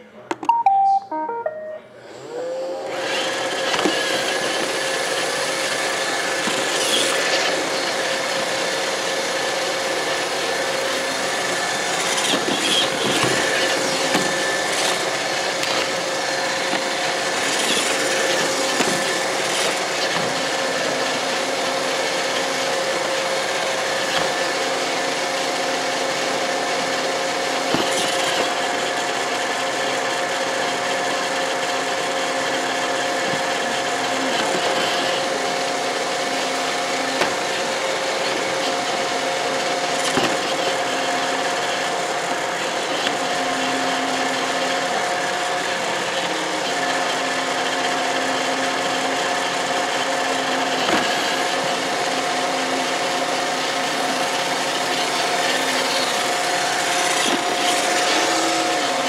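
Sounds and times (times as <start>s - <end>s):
higher whine: 0.4s - 2.6s
robot vacuum running: 2.0s - 59.0s.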